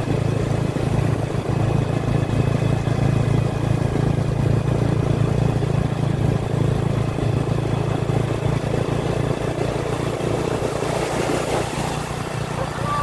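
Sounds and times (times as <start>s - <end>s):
motorcycle engine running: 0.0s - 13.0s
surf washing onto sand: 10.5s - 12.8s.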